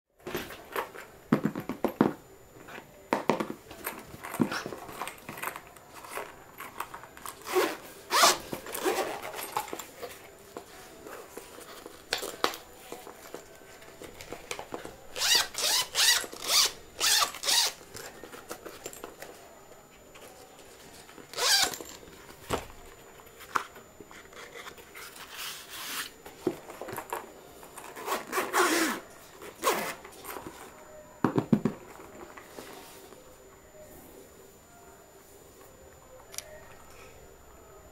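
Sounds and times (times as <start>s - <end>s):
zipper pulled open and shut: 7.4s - 9.4s, 28.0s - 29.0s, 29.6s - 30.0s.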